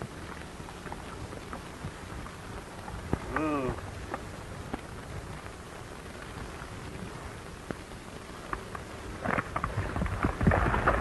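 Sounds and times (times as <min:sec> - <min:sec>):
film soundtrack hiss and crackle: 0:00.0 - 0:11.0
faint clicks: 0:07.6 - 0:11.0.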